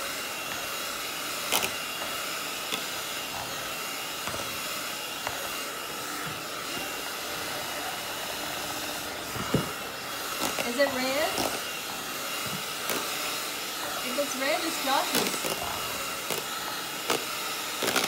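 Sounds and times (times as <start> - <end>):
electric hand mixer running: 0.0 - 18.0.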